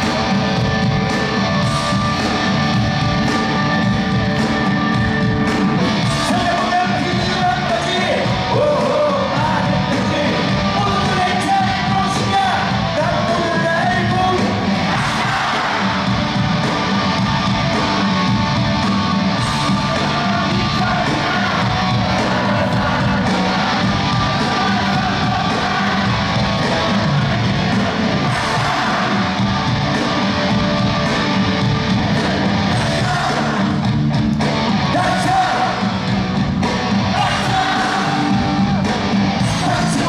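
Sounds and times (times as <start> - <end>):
live rock band: 0.0 - 40.0
person singing: 37.1 - 38.6, 39.4 - 40.0.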